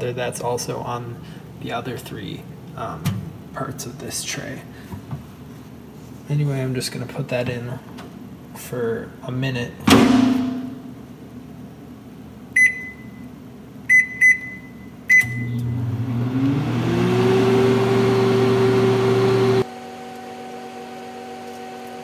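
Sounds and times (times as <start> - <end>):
microwave hum: 9.8 - 22.0
keypad beeps: 12.6 - 13.2, 13.9 - 15.6
fan whirring: 15.6 - 22.0.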